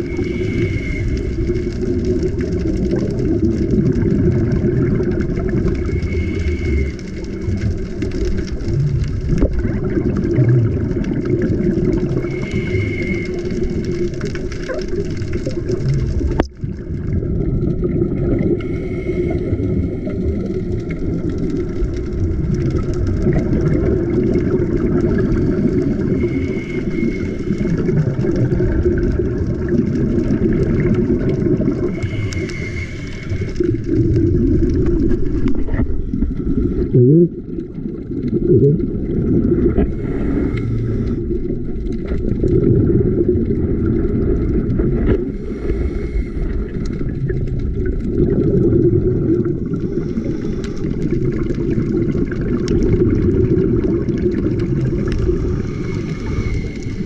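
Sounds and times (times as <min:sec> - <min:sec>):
regulator breathing: 0:00.0 - 0:01.8, 0:05.8 - 0:07.6, 0:12.2 - 0:14.0, 0:25.2 - 0:27.9, 0:31.8 - 0:34.2, 0:39.7 - 0:41.4, 0:45.2 - 0:47.1, 0:49.8 - 0:51.2, 0:55.4 - 0:57.0
exhaled bubbles: 0:00.0 - 0:57.0
underwater rumble: 0:00.0 - 0:57.0.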